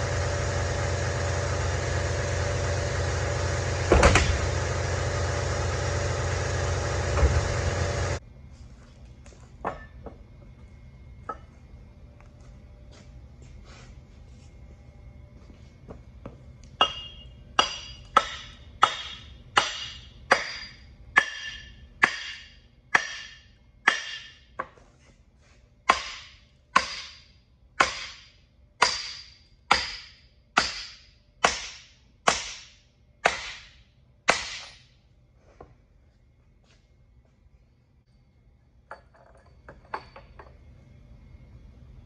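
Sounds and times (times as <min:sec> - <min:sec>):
hammer striking metal: 0:16.8 - 0:24.6, 0:25.9 - 0:34.9.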